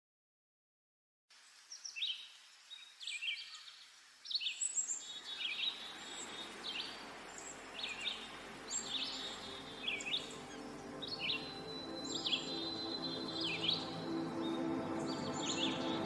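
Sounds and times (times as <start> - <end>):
bird chirping: 1.4 - 16.0
low steady drone: 6.1 - 16.0.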